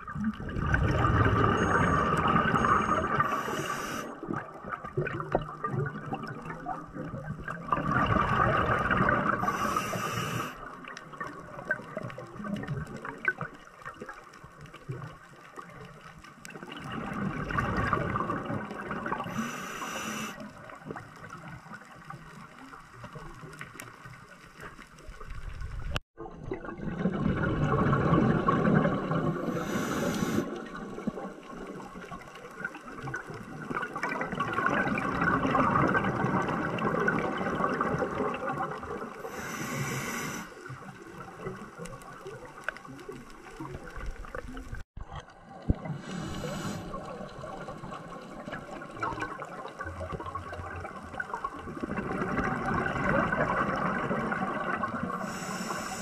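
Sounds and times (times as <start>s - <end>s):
exhaled bubbles rushing: 0.0s - 19.4s, 25.1s - 39.4s, 40.6s - 56.0s
regulator hiss: 3.2s - 4.1s, 9.4s - 10.6s, 19.3s - 20.4s, 29.5s - 30.5s, 39.3s - 40.5s, 55.2s - 56.0s.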